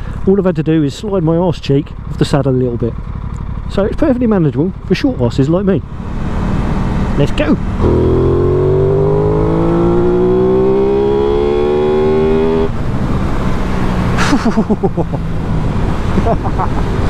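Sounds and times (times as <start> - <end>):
motorcycle engine accelerating: 2.0 - 17.0.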